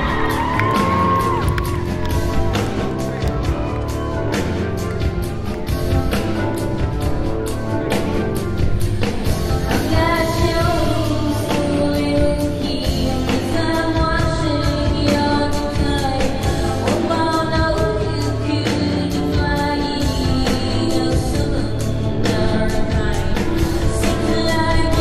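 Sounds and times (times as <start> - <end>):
bass line: 0.0 - 25.0
woman singing: 9.2 - 25.0.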